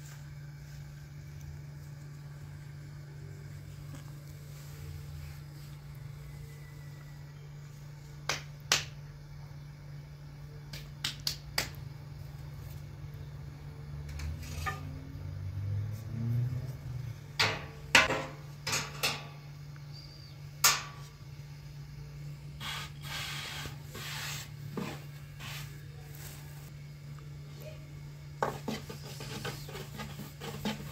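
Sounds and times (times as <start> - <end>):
steady low hum: 0.0 - 30.9
rubbing or scraping: 22.6 - 26.7, 28.4 - 30.9.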